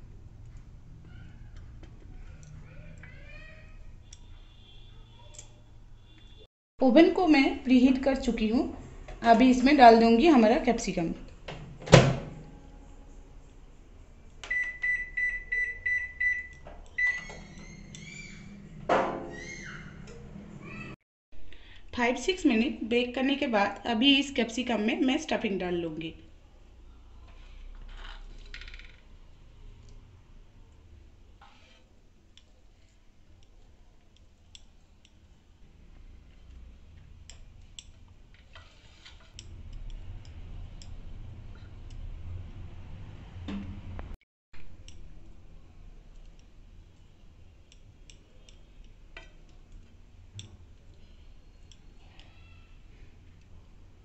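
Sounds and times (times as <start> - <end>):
microwave keypad beeps: 14.5 - 17.2.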